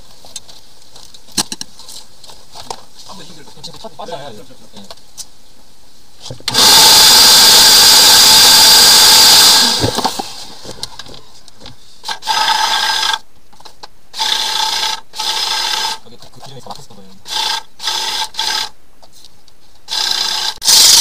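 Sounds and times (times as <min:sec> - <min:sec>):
electric motor whining: 0:06.5 - 0:10.8, 0:12.1 - 0:13.2, 0:17.2 - 0:18.7, 0:19.9 - 0:21.0.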